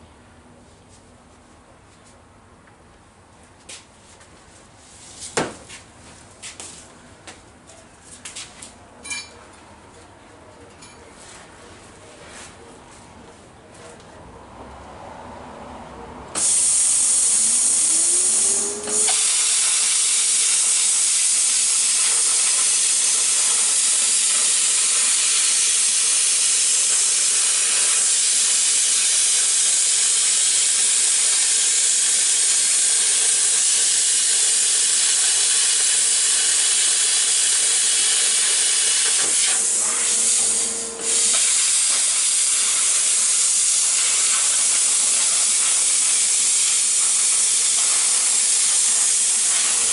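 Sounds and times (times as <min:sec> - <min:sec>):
plasma cutter arc hissing: 0:16.4 - 0:49.9
steady hum: 0:37.7 - 0:45.7.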